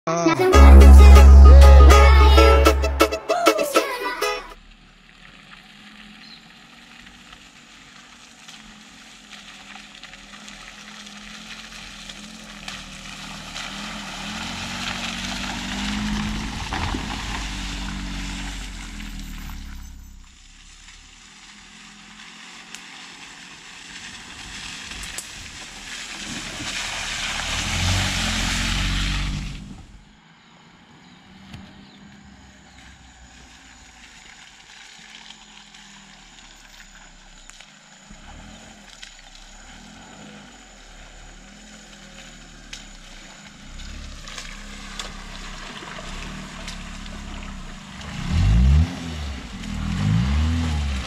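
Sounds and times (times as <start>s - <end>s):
car passing by: 23.3s - 33.6s.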